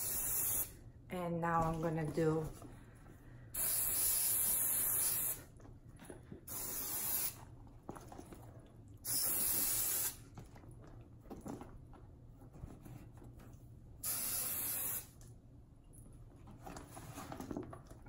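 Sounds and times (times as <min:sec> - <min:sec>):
aerosol can spraying: 0:00.0 - 0:00.8, 0:03.6 - 0:05.5, 0:06.5 - 0:07.4, 0:09.1 - 0:10.2, 0:14.0 - 0:15.2.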